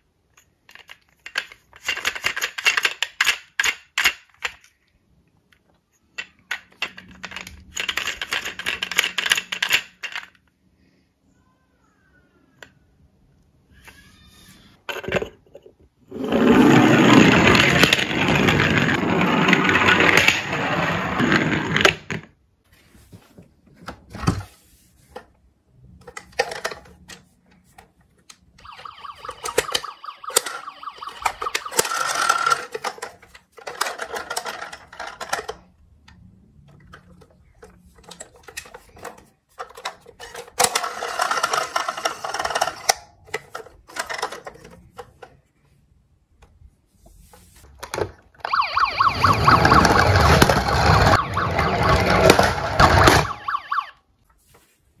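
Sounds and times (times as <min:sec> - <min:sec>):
plastic toys clicking and knocking: 0:00.0 - 0:10.7, 0:12.4 - 0:15.9, 0:17.2 - 0:20.6, 0:25.1 - 0:46.7, 0:47.6 - 0:53.5
toy ambulance siren: 0:28.6 - 0:32.8, 0:48.4 - 0:54.0
toy police car siren: 0:28.6 - 0:32.8, 0:48.4 - 0:54.0.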